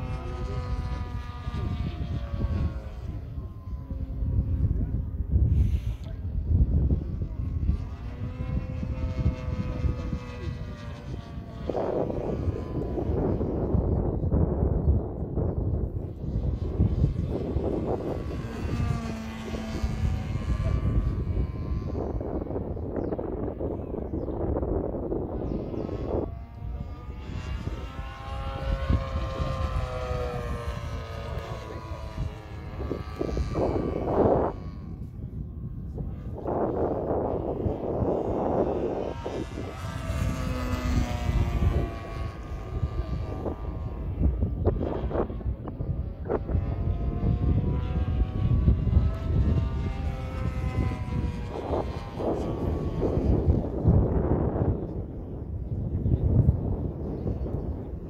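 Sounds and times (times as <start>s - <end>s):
model plane engine and propeller: 0.0s - 58.0s
wind rumble on microphone: 0.0s - 58.0s.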